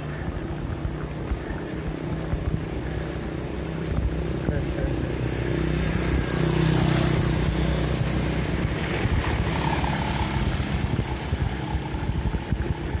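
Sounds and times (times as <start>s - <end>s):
low engine hum: 0.0s - 13.0s
street and road noise: 0.0s - 13.0s
wind on microphone: 5.9s - 13.0s.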